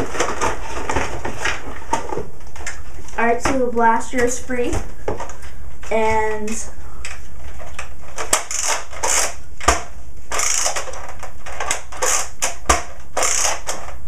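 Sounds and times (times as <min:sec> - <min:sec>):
sharp mechanism clicks: 0:08.3 - 0:09.4.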